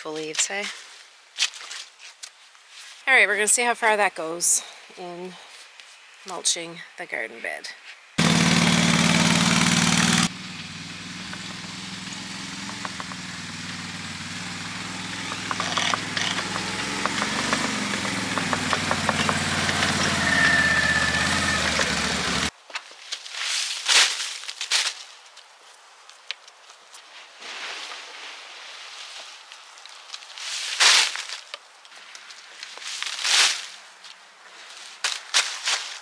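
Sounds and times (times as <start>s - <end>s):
rustling and scuffing: 0.1s - 3.0s, 26.1s - 36.0s
motor engine idling: 8.2s - 22.5s.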